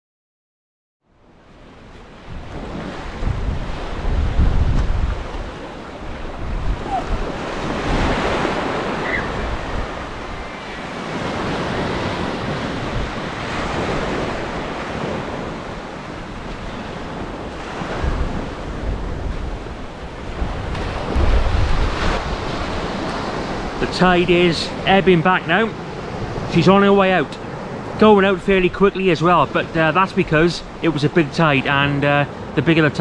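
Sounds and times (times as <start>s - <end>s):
wind rumble on microphone: 1.2s - 24.4s
surf breaking on beach: 1.5s - 33.0s.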